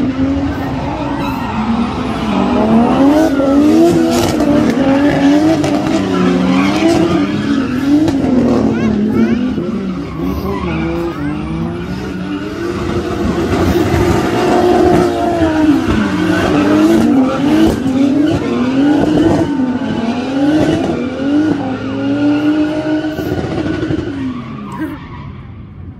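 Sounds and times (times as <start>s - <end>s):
race car engines revving: 0.0s - 25.9s.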